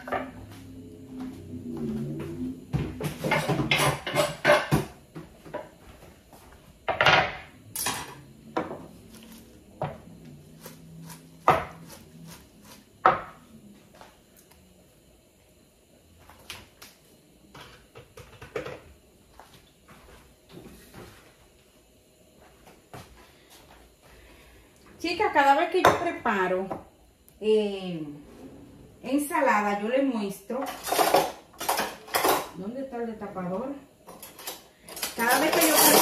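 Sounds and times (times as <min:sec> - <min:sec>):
dishes and utensils clattering: 0:03.1 - 0:04.9, 0:30.6 - 0:32.6, 0:34.1 - 0:36.0.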